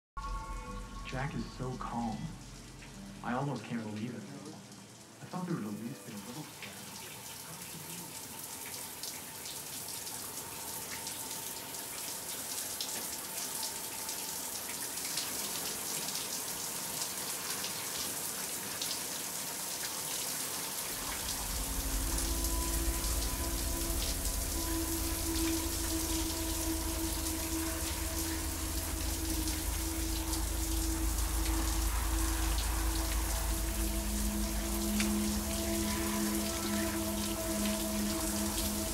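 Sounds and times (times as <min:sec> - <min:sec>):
low sustained drone: 0:00.2 - 0:03.8, 0:20.8 - 0:38.9
shower water spraying: 0:19.9 - 0:38.9.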